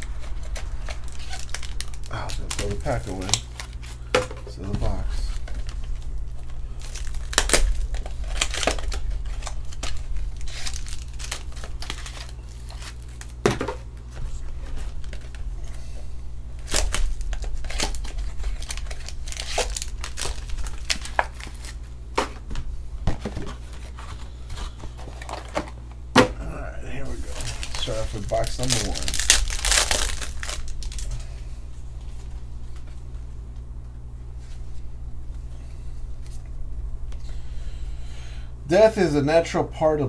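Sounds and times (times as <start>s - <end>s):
packaging crinkling and tearing: 0.0s - 15.5s, 16.6s - 22.2s, 26.9s - 31.3s
low hum: 0.0s - 39.2s.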